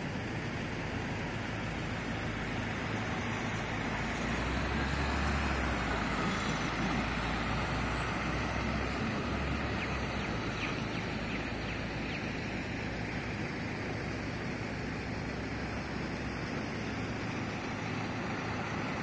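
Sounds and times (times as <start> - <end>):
low engine rumble: 0.0 - 19.0
cars passing: 1.6 - 19.0.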